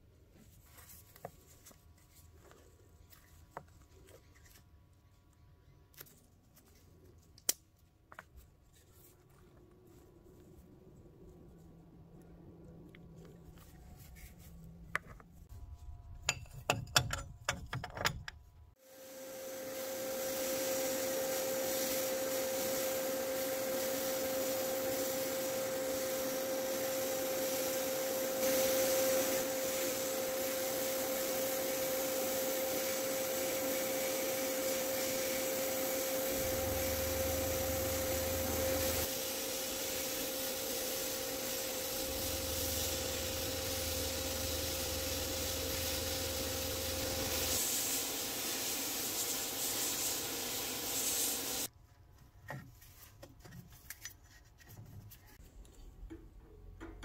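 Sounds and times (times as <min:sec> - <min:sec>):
sandblasting hiss: 0:18.8 - 0:51.7
steady hum: 0:33.7 - 0:48.2.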